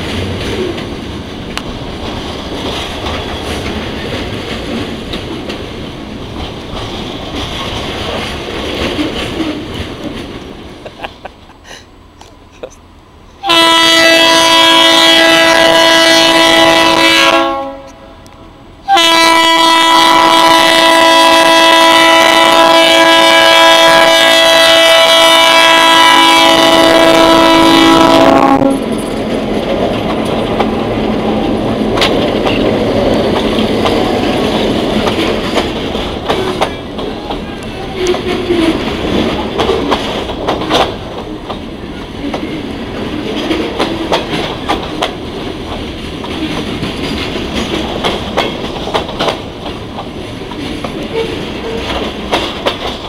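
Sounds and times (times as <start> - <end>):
train rumbling and clattering: 0.0 - 53.0
locomotive air horn blasts: 13.4 - 18.2, 18.8 - 28.9.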